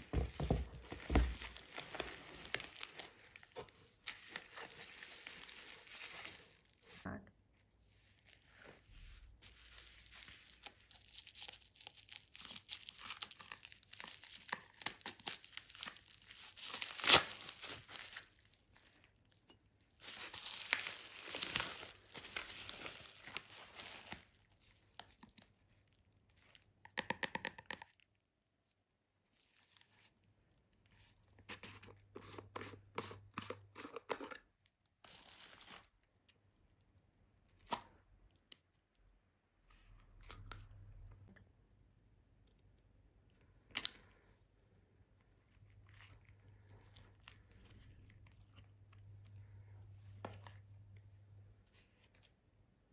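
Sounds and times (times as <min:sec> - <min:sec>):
bubble wrap crinkling and tearing: 0:00.0 - 0:07.0, 0:07.6 - 0:26.7, 0:34.9 - 0:36.6.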